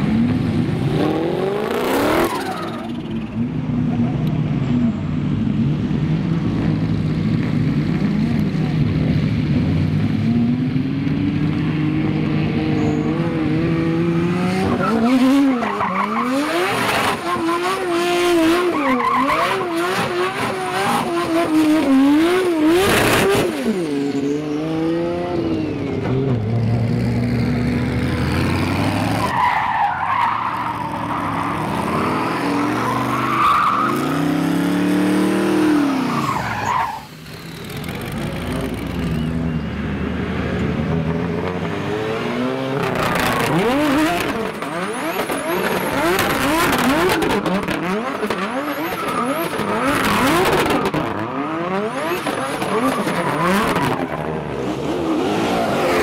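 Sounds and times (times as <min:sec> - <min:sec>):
tyre squeal: 0:01.9 - 0:03.0, 0:12.7 - 0:13.4, 0:35.9 - 0:37.8, 0:48.5 - 0:54.2
car engine revving hard: 0:40.8 - 0:56.0.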